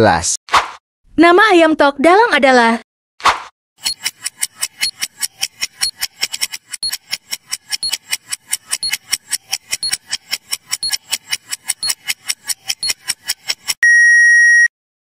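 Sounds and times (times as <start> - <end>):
countdown timer ticking fast: 6.8 - 13.7.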